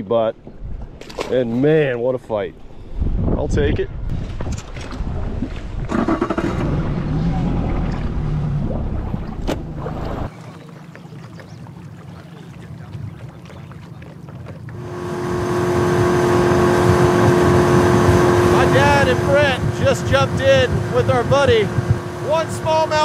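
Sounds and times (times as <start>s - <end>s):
wind on microphone: 2.6s - 10.3s, 15.4s - 23.0s
outboard motor running: 5.8s - 23.0s.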